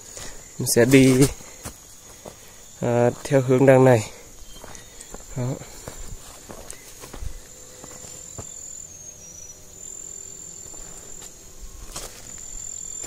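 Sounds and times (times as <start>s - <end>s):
footsteps on dirt: 0.0s - 8.8s, 10.6s - 13.0s
insect singing high note: 7.4s - 13.0s.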